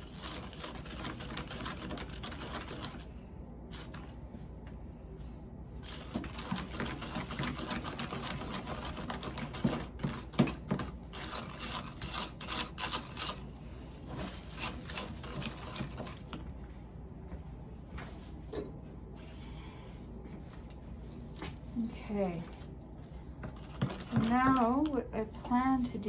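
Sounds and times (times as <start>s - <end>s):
spoon scraping plastic cup: 5.8s - 13.5s, 23.6s - 25.0s.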